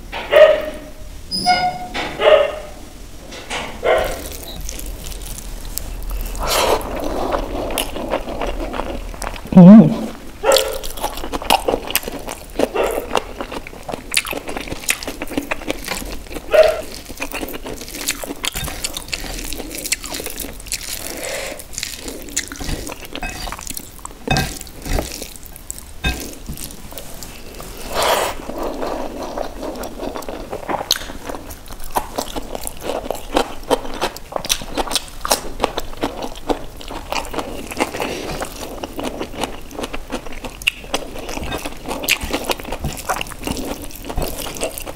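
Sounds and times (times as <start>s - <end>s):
wet chewing and lip smacks: 10.5s - 27.0s.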